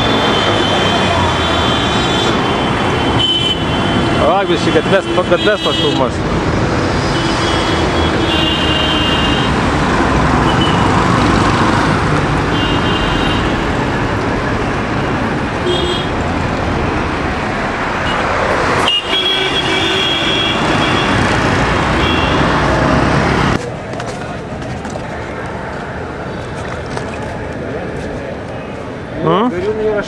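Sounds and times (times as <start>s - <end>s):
vehicle horns tooting: 0.0s - 6.2s, 7.1s - 9.6s, 10.4s - 11.0s, 12.5s - 13.7s, 15.6s - 16.2s, 18.0s - 22.6s
road traffic passing: 0.0s - 30.0s.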